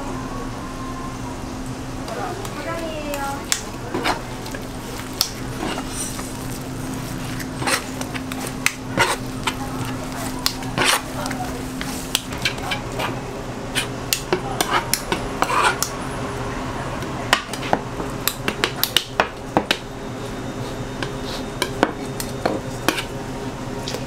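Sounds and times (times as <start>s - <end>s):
steady low hum: 0.0s - 24.0s
blades scraping on cutting board: 5.4s - 11.1s, 14.6s - 15.9s, 22.8s - 23.1s.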